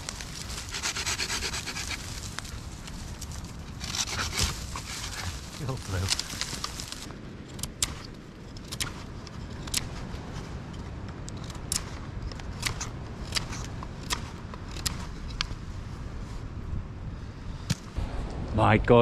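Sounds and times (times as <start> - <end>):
knife scraping wood: 0.0 - 2.5, 3.8 - 5.6
low rumble: 12.8 - 19.0.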